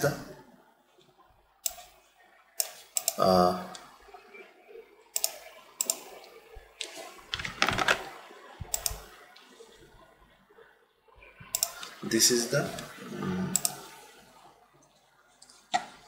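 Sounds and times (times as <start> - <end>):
mouse clicks: 2.6 - 3.2, 5.2 - 6.0, 8.7 - 9.0.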